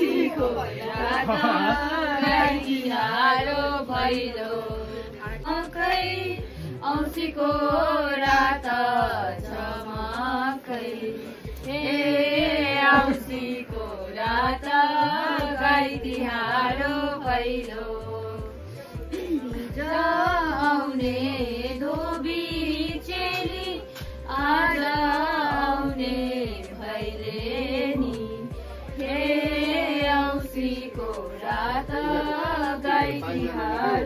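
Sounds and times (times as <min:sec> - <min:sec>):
music with low beat: 0:00.0 - 0:34.0
voices singing together: 0:00.0 - 0:34.0.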